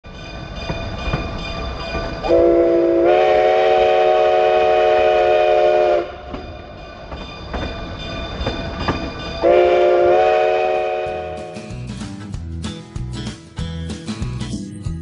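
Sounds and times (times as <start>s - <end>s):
train running noise: 0.0s - 15.0s
steam locomotive chime whistle: 2.0s - 7.3s, 9.2s - 11.9s
scattered knocks: 6.3s - 9.4s.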